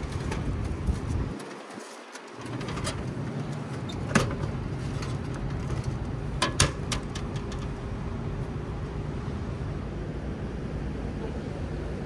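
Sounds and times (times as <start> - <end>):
steady low hum: 2.4 - 12.0.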